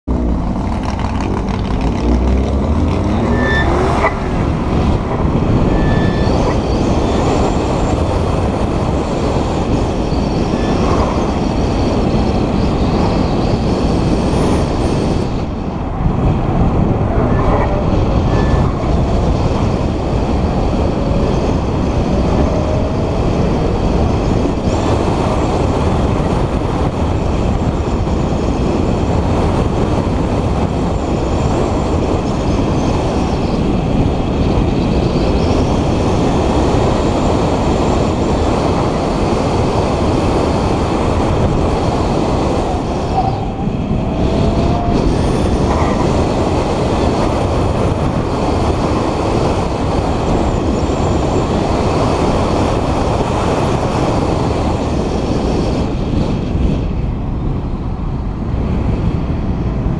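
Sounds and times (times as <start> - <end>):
car engine revving: 0.0 - 8.8
tyre and wind noise: 0.0 - 59.9
short high squeaks: 2.8 - 4.4, 5.6 - 6.8.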